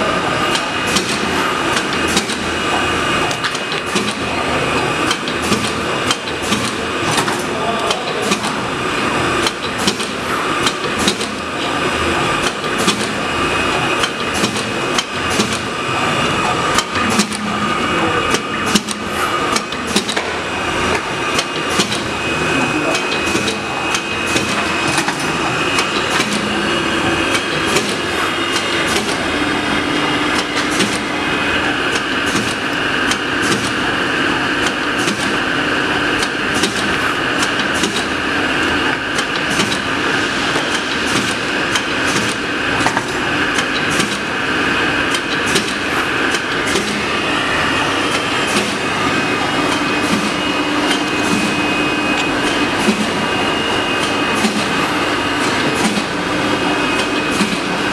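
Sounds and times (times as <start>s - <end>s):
machine mechanical whine: 0.0s - 57.9s
sharp mechanical clicks and knocks: 0.5s - 2.6s, 3.2s - 4.3s, 5.0s - 8.6s, 9.4s - 11.8s, 12.4s - 13.2s, 13.8s - 15.8s, 16.4s - 17.6s, 18.3s - 22.2s, 22.9s - 31.1s, 31.9s - 33.8s, 34.6s - 35.4s, 36.1s - 38.2s, 38.8s - 44.3s, 45.0s - 47.1s, 49.6s - 53.2s, 53.9s - 56.2s, 56.9s - 57.8s.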